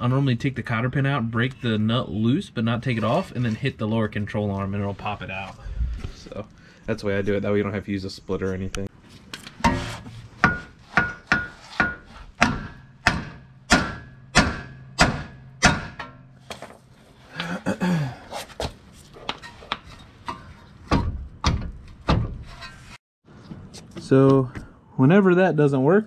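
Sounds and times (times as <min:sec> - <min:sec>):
hammer striking steel: 0:09.6 - 0:16.4.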